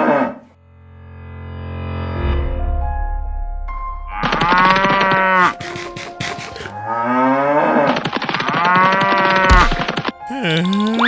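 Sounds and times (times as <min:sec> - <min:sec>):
cow mooing: 0:04.1 - 0:05.8, 0:06.6 - 0:09.6
short scratchy noises: 0:04.2 - 0:06.7.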